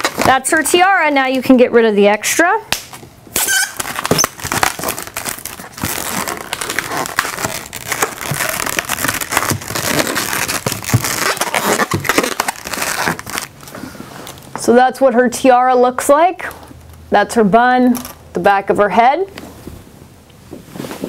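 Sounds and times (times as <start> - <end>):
balloons crinkling and rubbing: 0.0 - 0.9, 2.8 - 14.5.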